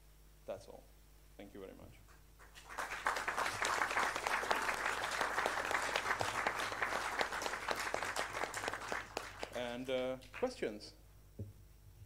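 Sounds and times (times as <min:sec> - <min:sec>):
audience applauding: 0:02.4 - 0:09.9.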